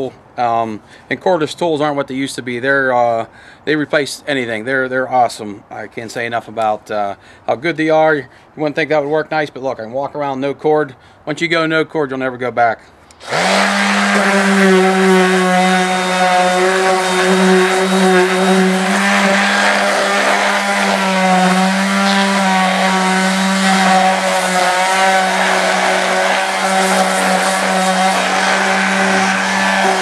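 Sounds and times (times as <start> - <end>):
power sander on wood: 13.2 - 30.0.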